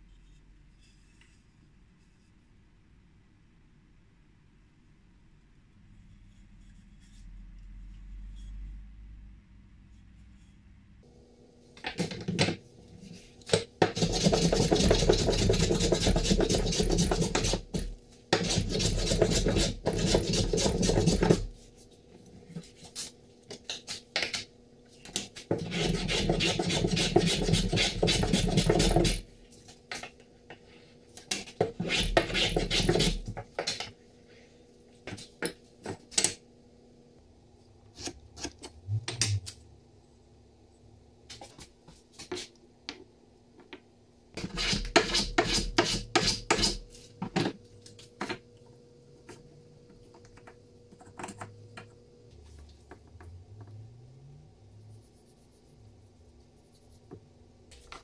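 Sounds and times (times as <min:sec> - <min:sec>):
hand plane rasping on wood: 0:14.0 - 0:21.5, 0:25.5 - 0:29.2, 0:31.8 - 0:33.3
tools knocking and clicking: 0:50.2 - 0:51.9.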